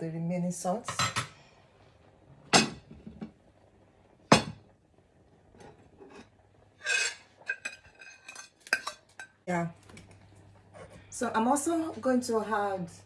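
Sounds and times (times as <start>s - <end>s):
spoon scraping: 6.0s - 9.4s
metal spoon clinking on cookware: 6.8s - 9.4s.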